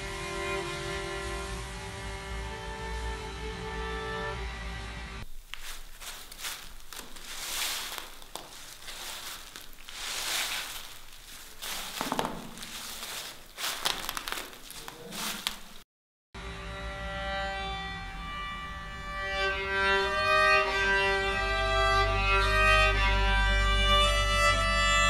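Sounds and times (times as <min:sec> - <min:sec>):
footsteps crunching dry leaves: 0:05.2 - 0:15.8.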